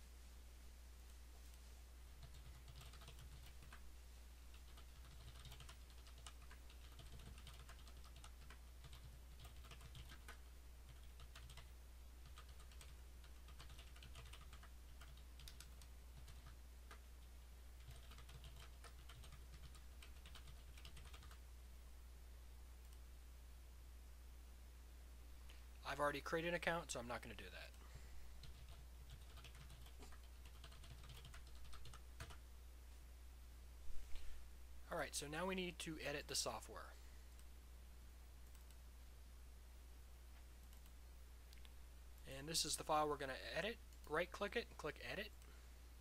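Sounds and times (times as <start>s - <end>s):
computer keyboard typing: 2.2s - 3.8s, 4.5s - 21.4s, 28.4s - 32.4s.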